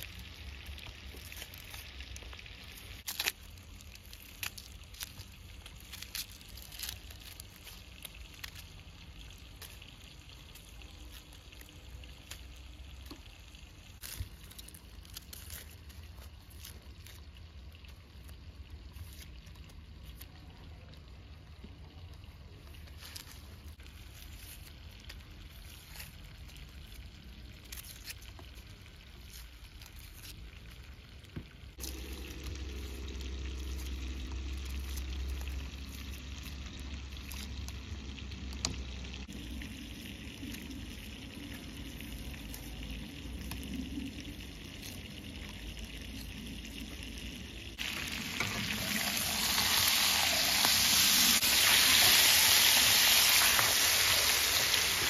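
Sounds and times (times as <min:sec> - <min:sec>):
spatula turning meat: 0:22.7 - 0:55.0
meat sizzling in a frying pan: 0:43.0 - 0:55.0.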